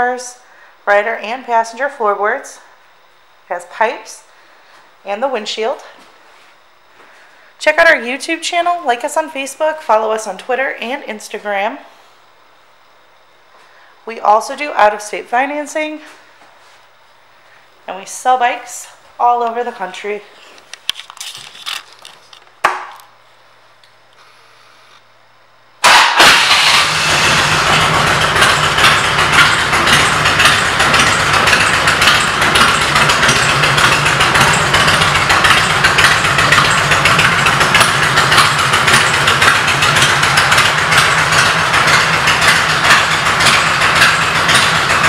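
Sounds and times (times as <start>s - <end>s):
motorcycle engine starting and idling: 25.8s - 45.0s.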